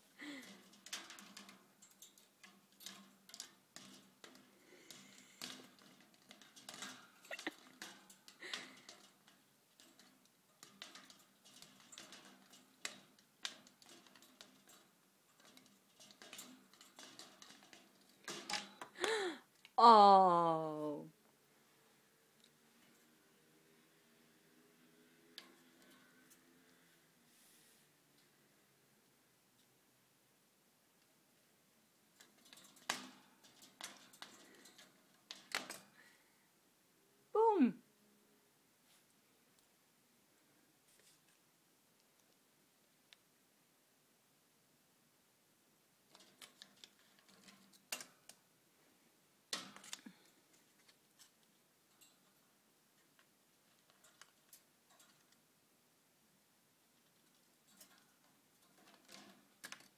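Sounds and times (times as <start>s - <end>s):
bird pecking at a toy: 0.4s - 19.7s, 32.2s - 36.0s, 49.5s - 55.4s.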